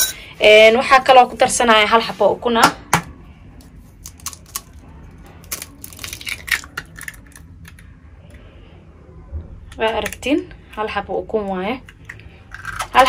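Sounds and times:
egg shell cracking: 0:04.0 - 0:04.8, 0:05.4 - 0:07.8, 0:11.8 - 0:13.0.

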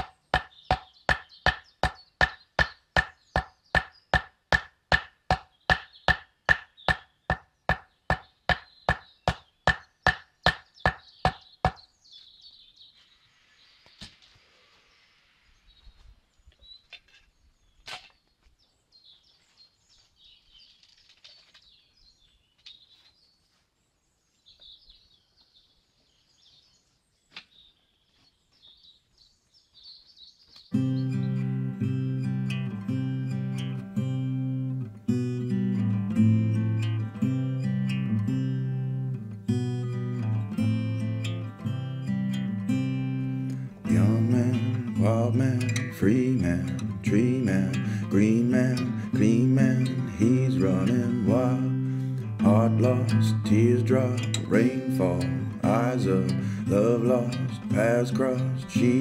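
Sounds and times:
wooden stakes being hammered: 0:00.0 - 0:11.9
faint birdsong: 0:00.0 - 0:59.0.

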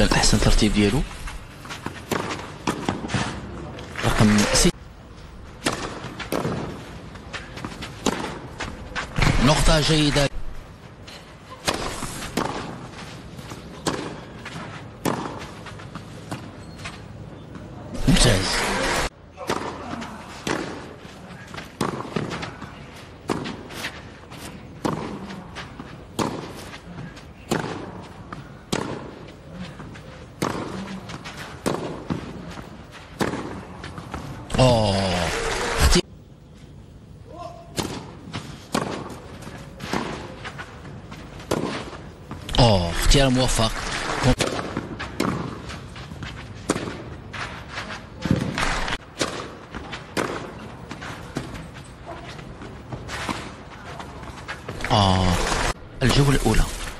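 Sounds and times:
tennis racquets hitting ball: 0:01.8 - 0:03.5, 0:05.6 - 0:06.9, 0:07.6 - 0:08.7, 0:11.6 - 0:12.8, 0:13.6 - 0:15.7, 0:19.4 - 0:21.0, 0:21.6 - 0:22.5, 0:23.2 - 0:24.0, 0:24.6 - 0:26.8, 0:27.4 - 0:28.1, 0:28.7 - 0:29.2, 0:30.3 - 0:32.4, 0:33.1 - 0:34.2, 0:37.7 - 0:39.2, 0:41.4 - 0:42.0, 0:44.0 - 0:45.7, 0:46.6 - 0:47.2, 0:48.2 - 0:51.6.

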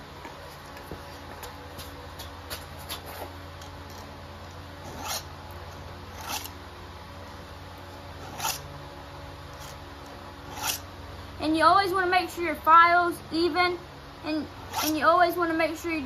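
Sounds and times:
file rasping on chain: 0:04.8 - 0:05.3, 0:06.1 - 0:06.5, 0:08.2 - 0:08.6, 0:10.5 - 0:10.8, 0:14.7 - 0:15.0.

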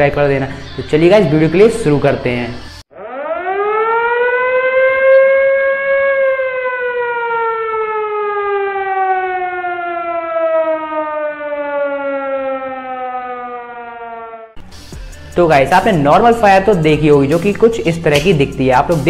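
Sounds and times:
siren wailing: 0:02.7 - 0:14.6.

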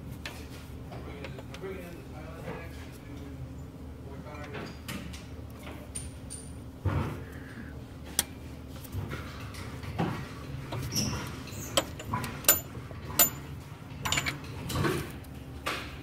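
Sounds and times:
low steady hum: 0:00.0 - 0:15.7
metal tools clinking on engine: 0:10.7 - 0:14.9.

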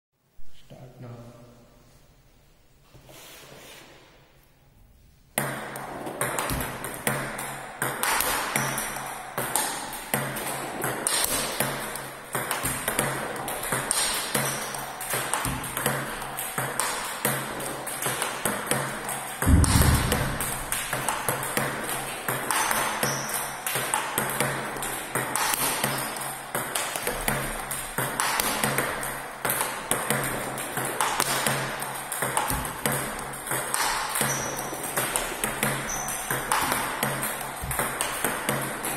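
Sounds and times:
low thump: 0:19.4 - 0:20.8.

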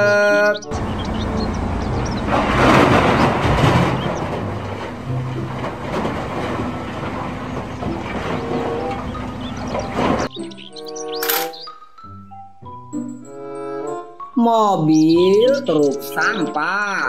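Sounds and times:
diesel engine running: 0:00.7 - 0:10.3
earth pouring into truck bed: 0:02.3 - 0:08.4.

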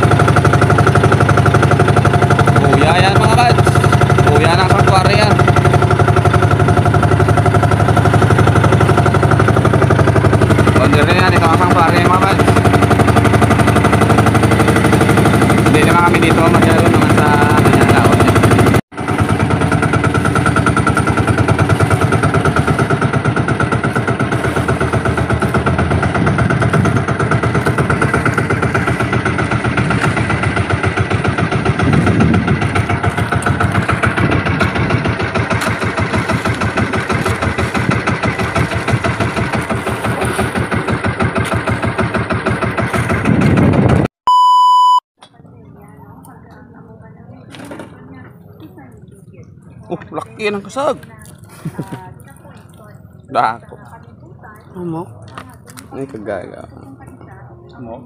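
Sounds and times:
boat engine chugging: 0:00.0 - 0:44.1, 0:45.2 - 0:58.0
test-tone beep: 0:44.3 - 0:45.0.

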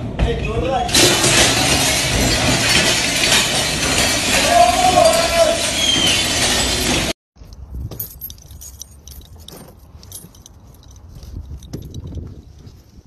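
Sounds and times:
keys jangling on a ring: 0:07.9 - 0:12.7.

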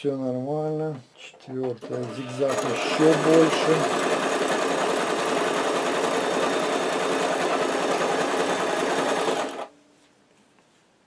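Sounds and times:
sewing machine running: 0:01.6 - 0:09.7.

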